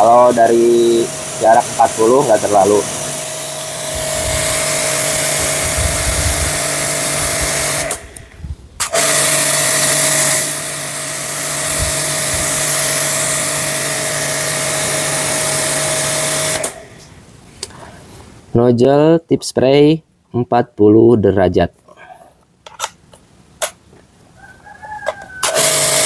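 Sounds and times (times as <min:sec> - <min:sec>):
water spraying hiss: 0:00.0 - 0:08.3, 0:08.9 - 0:17.0
pressure washer motor humming: 0:00.0 - 0:17.0, 0:25.4 - 0:26.0.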